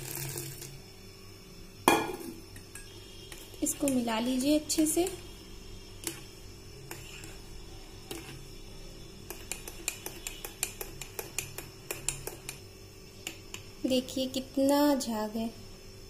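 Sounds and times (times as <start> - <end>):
spoon clinking against mug: 9.3 - 12.6.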